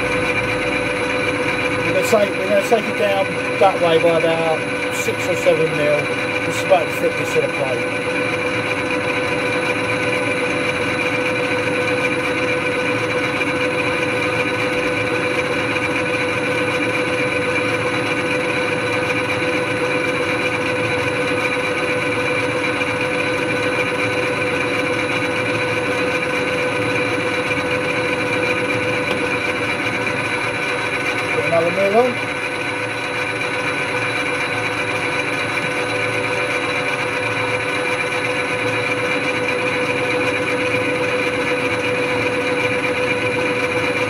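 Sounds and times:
tool cutting steel bar: 0.0s - 12.3s
metal lathe whining: 0.0s - 44.0s.

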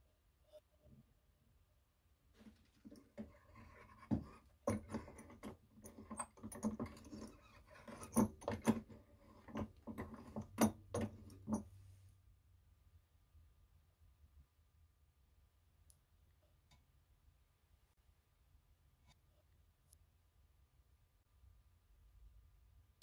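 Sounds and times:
rustling: 2.3s - 5.4s
sewing machine clicks and knocks: 2.4s - 11.7s.

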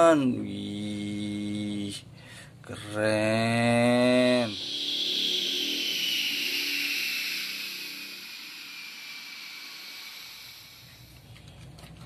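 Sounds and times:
jet engine whining: 4.2s - 11.3s.

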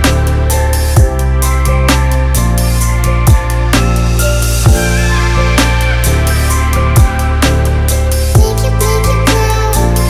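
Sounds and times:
electronic music with steady beat: 0.0s - 10.0s.

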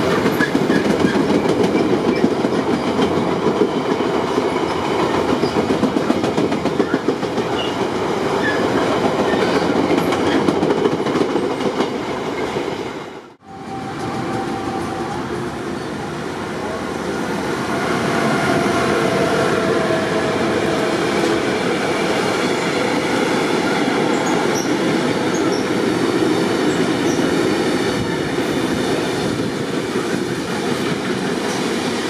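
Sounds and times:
train wheels clattering over rails: 0.0s - 12.7s.

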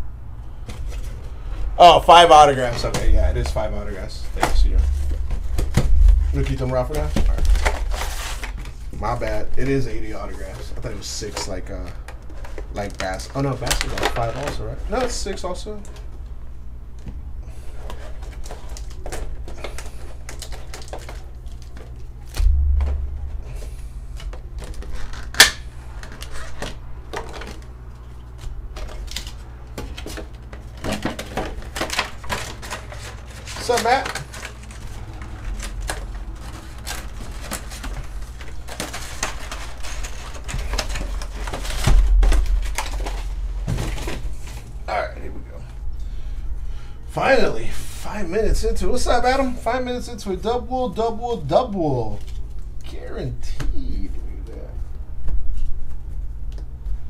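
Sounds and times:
steady low hum: 0.0s - 57.0s
heavy bump: 4.4s - 9.0s, 22.4s - 24.9s, 41.6s - 44.5s
plastic packaging crackling: 4.4s - 15.9s, 17.9s - 23.1s, 24.2s - 44.7s
low thump: 22.4s - 24.5s, 41.8s - 42.7s.

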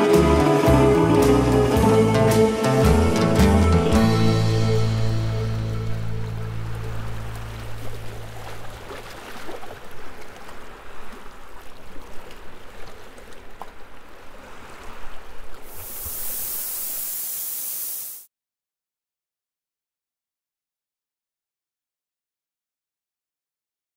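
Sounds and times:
sea surf washing onto beach: 0.0s - 3.3s, 6.0s - 18.3s
song ending: 0.0s - 7.8s
bright steady hiss: 15.7s - 18.3s.

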